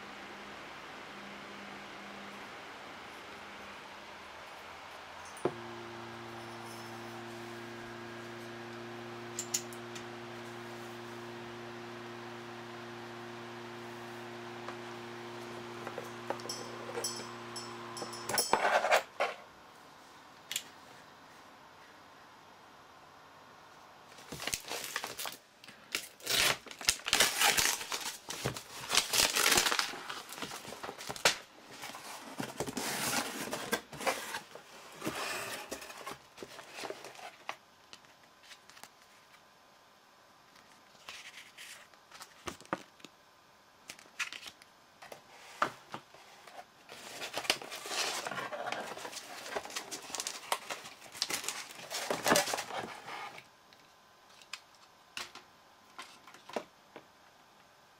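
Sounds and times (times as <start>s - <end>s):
packing paper crinkling and rustling: 24.1s - 35.1s, 46.9s - 53.5s.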